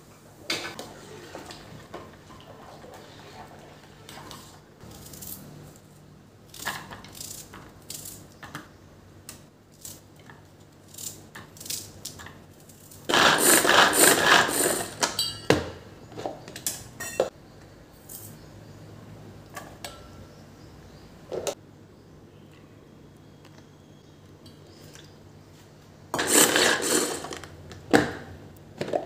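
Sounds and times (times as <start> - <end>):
onion chopper whirring and rattling: 12.7 - 15.1, 26.2 - 27.5.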